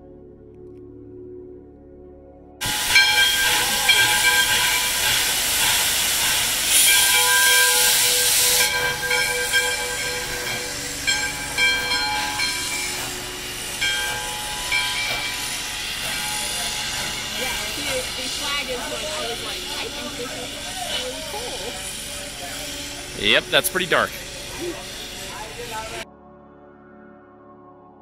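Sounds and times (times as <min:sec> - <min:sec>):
steam locomotive hissing steam: 0:02.6 - 0:26.0.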